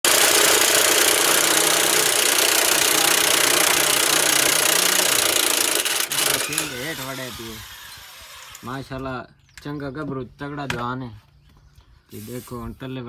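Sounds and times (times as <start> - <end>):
power tool whirring: 0.0 - 8.9.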